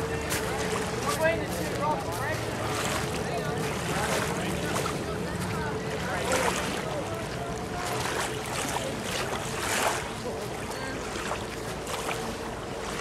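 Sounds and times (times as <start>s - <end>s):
small waves lapping at shore: 0.0s - 13.0s.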